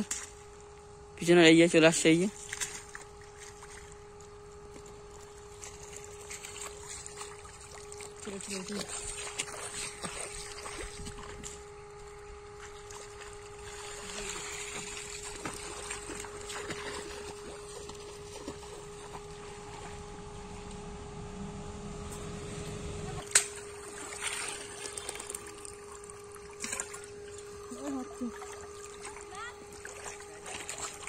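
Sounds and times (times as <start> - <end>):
steady hum: 0.0 - 31.0
feet splashing through water: 2.3 - 4.2, 5.0 - 11.7, 12.4 - 20.0, 23.2 - 31.0.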